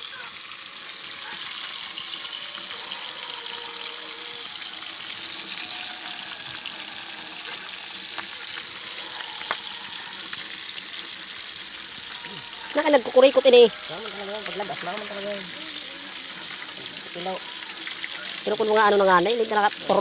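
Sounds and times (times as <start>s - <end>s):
fish frying in hot oil: 0.0s - 20.0s
oil popping: 4.5s - 20.0s.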